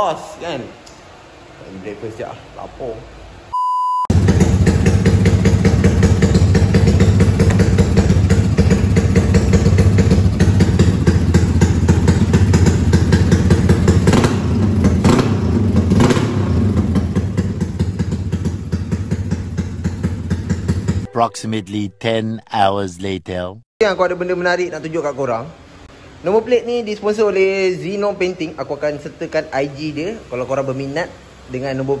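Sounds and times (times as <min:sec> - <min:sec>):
motorcycle engine running and revving: 0:04.1 - 0:21.0.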